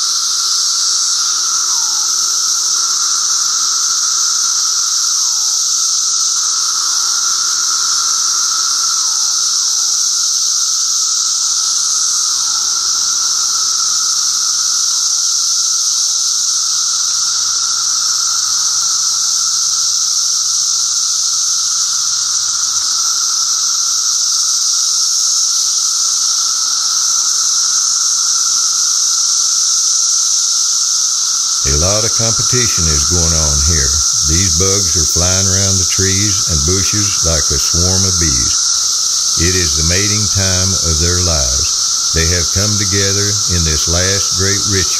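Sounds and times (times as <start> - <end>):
cicadas droning: 0.0 - 42.2
short falling calls: 31.7 - 38.8, 39.4 - 44.9.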